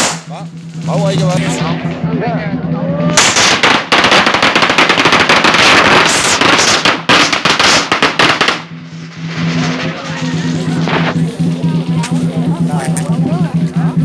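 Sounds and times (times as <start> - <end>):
firecrackers crackling: 0.0 - 2.1, 3.0 - 13.1.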